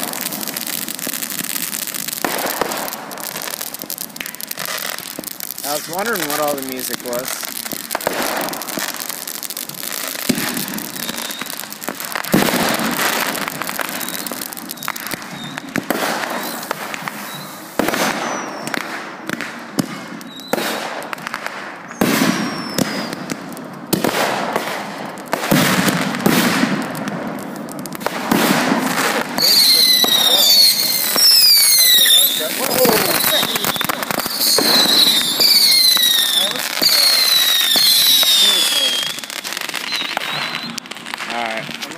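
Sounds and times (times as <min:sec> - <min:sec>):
fireworks bangs: 0:00.0 - 0:41.9
fireworks crackling: 0:00.0 - 0:41.9
falling whistles: 0:10.9 - 0:11.6, 0:13.9 - 0:15.7, 0:17.2 - 0:18.8, 0:20.3 - 0:20.6, 0:21.9 - 0:23.2, 0:29.4 - 0:40.8.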